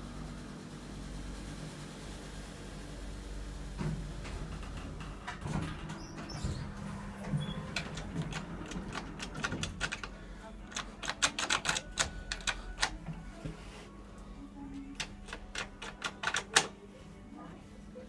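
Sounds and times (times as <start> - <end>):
lift car humming: 0.0 - 17.5
sharp irregular clicks: 7.8 - 13.0, 15.0 - 16.7.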